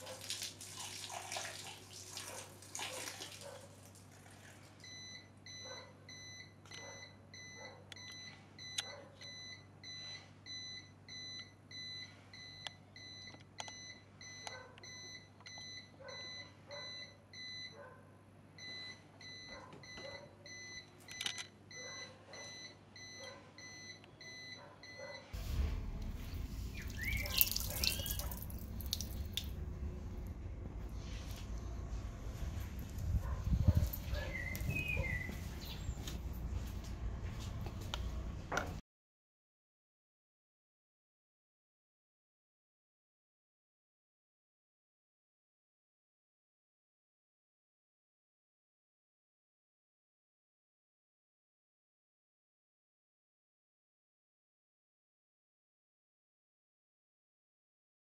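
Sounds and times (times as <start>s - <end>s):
water splashing: 0.0s - 4.6s, 25.4s - 29.9s
low rumbling noise: 25.4s - 38.5s.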